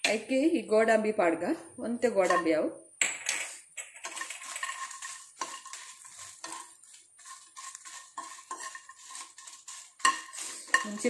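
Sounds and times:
spoon clinking and scraping pan: 2.2 - 11.0.

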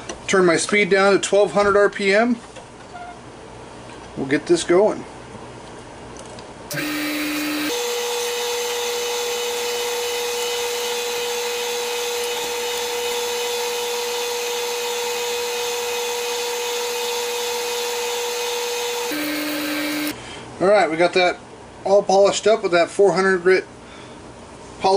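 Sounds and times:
lathe motor whining: 6.7 - 20.2.

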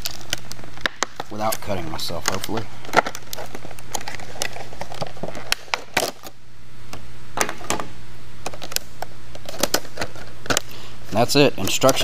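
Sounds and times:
plastic packaging crackling: 0.0 - 6.4
steady low hum: 0.0 - 12.0.

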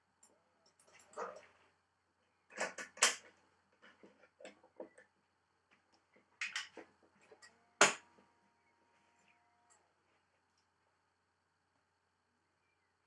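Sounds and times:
faint steady tone: 7.1 - 13.0.

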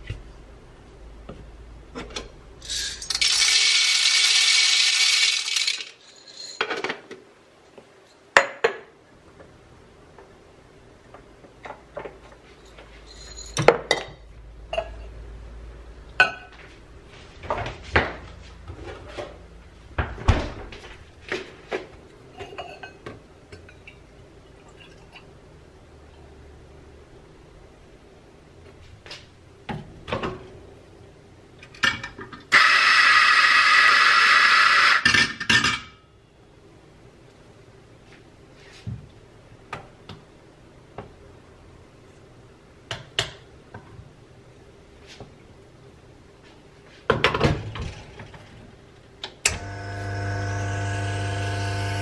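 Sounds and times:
metal and ceramic clinks: 12.6 - 14.0.

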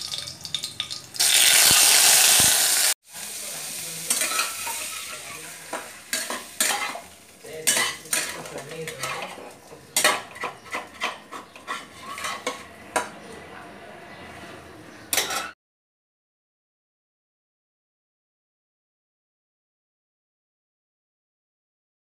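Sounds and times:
oil sizzling: 0.0 - 13.1
metal spatula scraping a wok: 1.2 - 13.3, 14.2 - 15.6.

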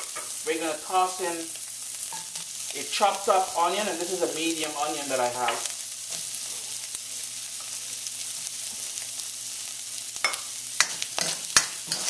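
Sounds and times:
food sizzling in a wok: 0.0 - 12.0
spatula clicking on a wok: 10.2 - 12.0.

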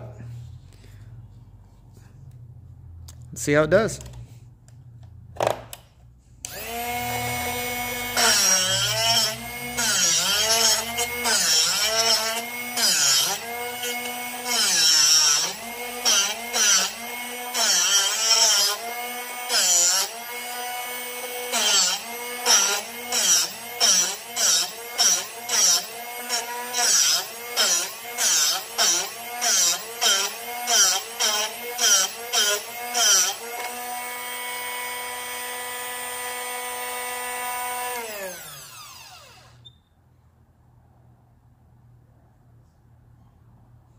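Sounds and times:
motor humming: 6.4 - 12.8.

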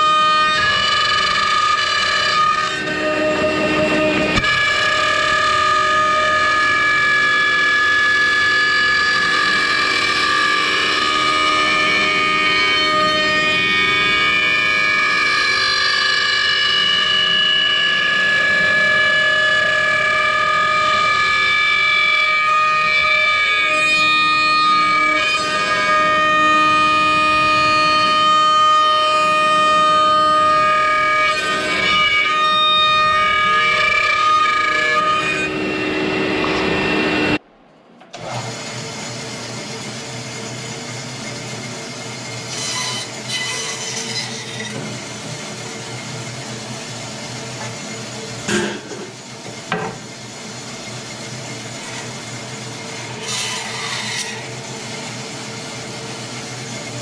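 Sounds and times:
bandsaw humming: 0.0 - 37.4, 38.2 - 57.0
cnc router cutting wood: 0.0 - 37.4, 38.2 - 57.0
saw blade cutting thick wood: 42.4 - 45.0, 53.0 - 54.6.

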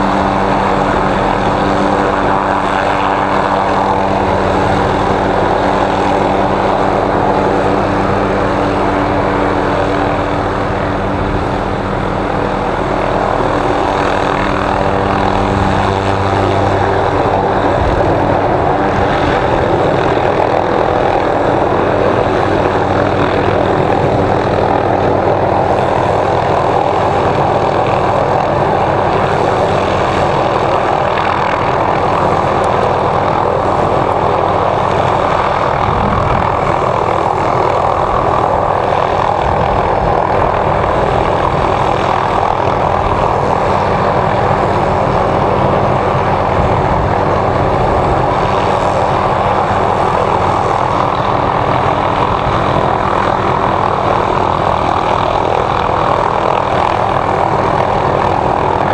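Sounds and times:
helicopter rotors beating: 0.0 - 58.9
turbine whine: 0.0 - 58.9.

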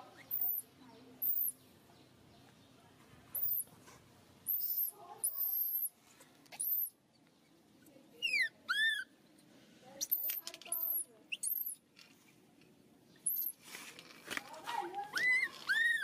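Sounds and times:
baby monkey high-pitched squeals: 0.1 - 0.6, 1.2 - 1.6, 3.4 - 3.7, 4.5 - 5.9, 6.5 - 7.0, 8.2 - 9.1, 10.0 - 11.8, 13.2 - 13.6, 15.1 - 16.0.

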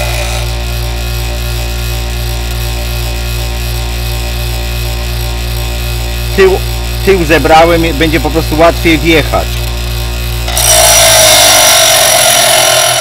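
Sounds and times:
bench grinder humming: 0.0 - 13.0
drill bit grinding on wheel: 0.0 - 13.0.

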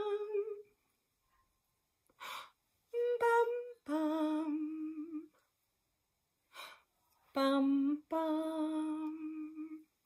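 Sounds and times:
woman breathing in: 6.5 - 6.9.

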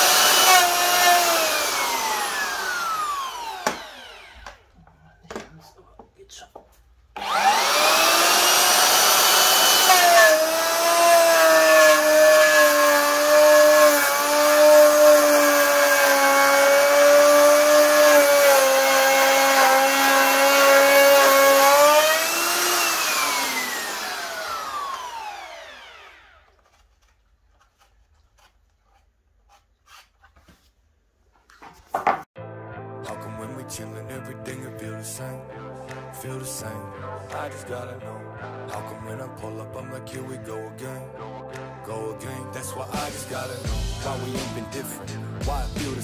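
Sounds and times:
electric jigsaw cutting wood: 0.0 - 4.7, 7.2 - 26.6.

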